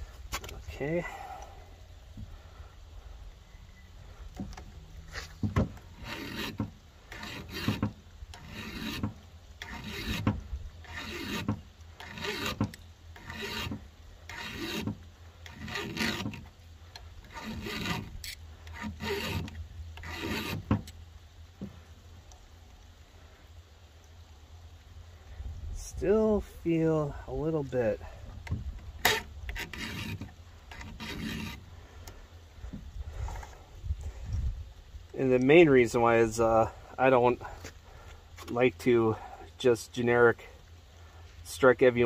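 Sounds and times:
file rasping on chainsaw chain: 4.5s - 21.0s, 29.0s - 31.7s.

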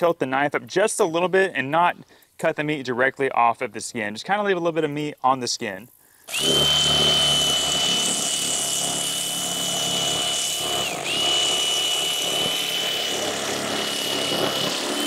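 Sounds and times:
electric knife whining: 6.3s - 15.0s.

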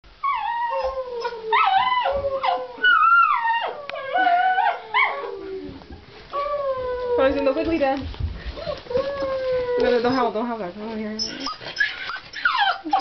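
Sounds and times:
dog whining and yelping: 0.2s - 7.6s, 8.6s - 10.3s, 11.2s - 13.0s.

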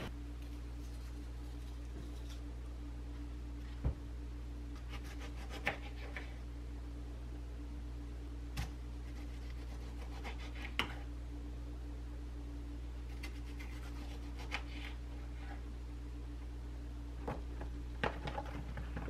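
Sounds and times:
steady low hum: 0.0s - 19.0s
knife slicing tomato: 4.8s - 6.4s, 8.6s - 11.1s, 13.0s - 15.6s.

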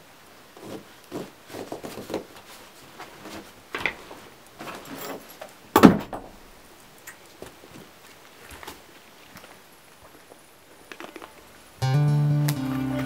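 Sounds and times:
backpack straps and buckles rustling: 0.6s - 5.6s.

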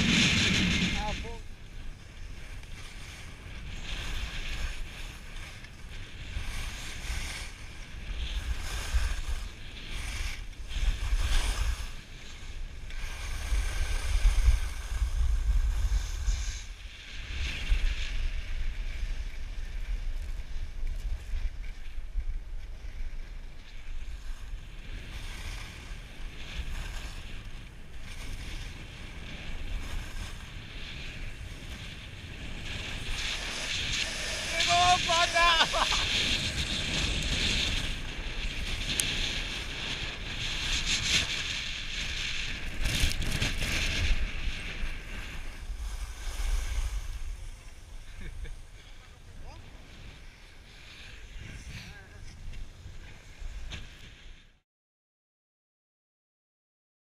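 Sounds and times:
wind buffeting microphone: 0.0s - 54.5s
skis sliding on snow: 0.0s - 54.6s.

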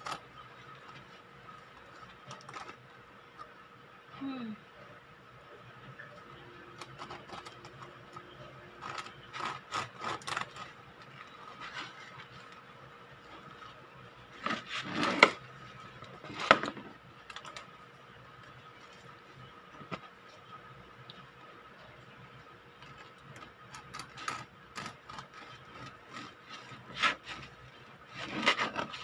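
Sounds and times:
bread knife sawing through crust: 8.8s - 10.8s, 24.0s - 29.0s.

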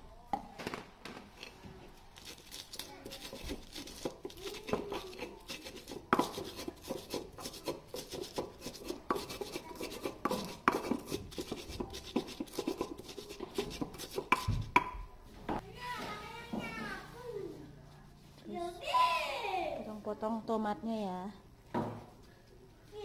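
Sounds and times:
stone pestle grinding in mortar: 2.2s - 14.9s
pestle knocking on stone: 3.2s - 15.0s.

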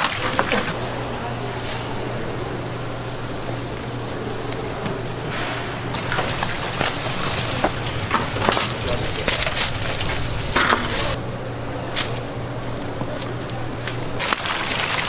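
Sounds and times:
low steady hum: 0.0s - 15.0s
tempura sizzling in hot oil: 1.5s - 11.2s, 14.2s - 15.0s.

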